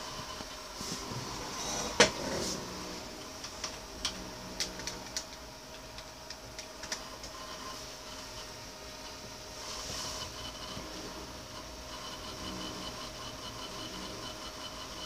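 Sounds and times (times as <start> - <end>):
computer hum: 0.0 - 15.0
hard drive clicks: 3.2 - 9.4, 10.1 - 15.0.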